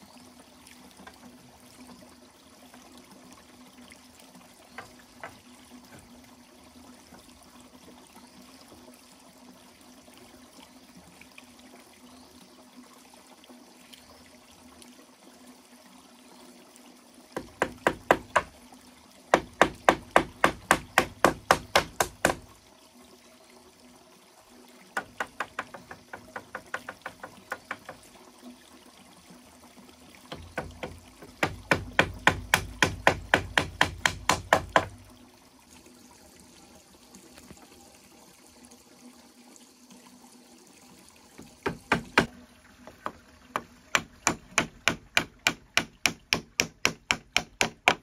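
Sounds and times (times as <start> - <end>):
tool knocking on bamboo: 4.8 - 6.1, 17.4 - 18.5, 19.3 - 22.5, 25.0 - 28.1, 30.3 - 35.0, 41.4 - 42.3, 42.9 - 48.0.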